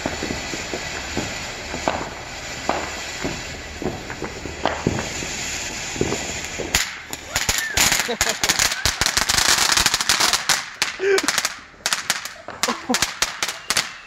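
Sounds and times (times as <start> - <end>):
firework hissing and crackling: 0.0 - 14.0.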